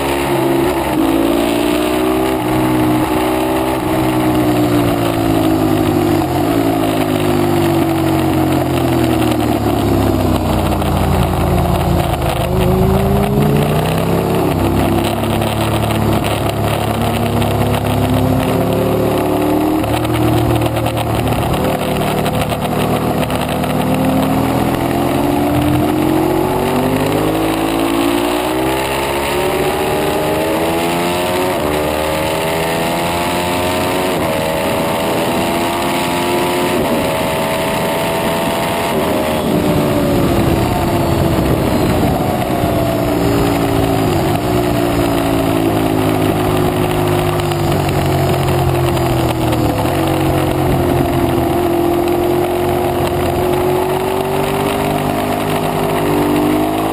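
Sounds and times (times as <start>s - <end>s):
motorcycle engine revving through gears: 0.0s - 56.9s
wind rush: 36.8s - 45.8s.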